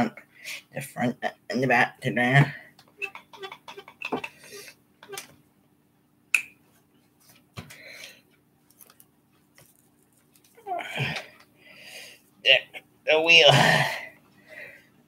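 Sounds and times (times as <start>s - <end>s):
soft handling and rustling: 6.7s - 10.7s.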